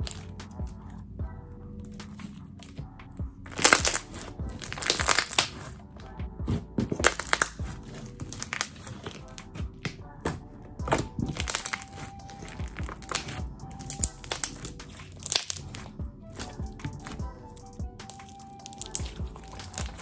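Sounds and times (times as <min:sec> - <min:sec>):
slime squished by hand: 0:03.5 - 0:05.8, 0:06.5 - 0:10.0, 0:10.9 - 0:17.2, 0:18.0 - 0:20.0.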